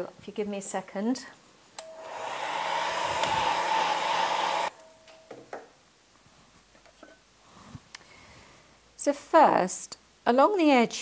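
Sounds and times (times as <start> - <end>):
handheld electric dryer blowing: 1.8 - 4.8.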